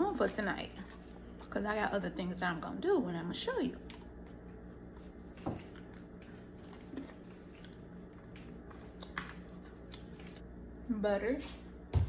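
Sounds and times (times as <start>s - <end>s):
person chewing coffee beans: 0.2s - 1.6s, 3.8s - 10.4s.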